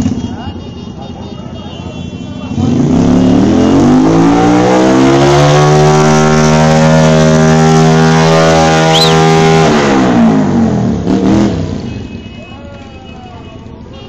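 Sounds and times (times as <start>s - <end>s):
vehicle engine revving: 2.5s - 11.9s
brief high chirp: 8.9s - 9.2s.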